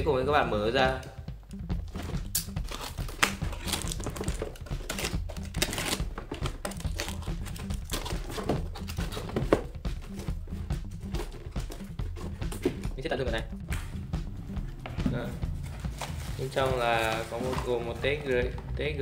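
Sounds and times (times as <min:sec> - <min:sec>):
background music with steady bass: 0:00.0 - 0:19.0
tape crinkling and peeling: 0:02.3 - 0:09.2
utility knife slitting packing tape: 0:02.4 - 0:09.0.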